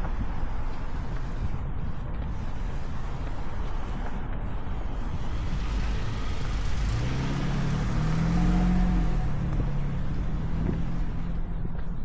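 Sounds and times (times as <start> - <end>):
wind rumble on microphone: 0.0 - 12.0
van driving past: 5.3 - 11.4.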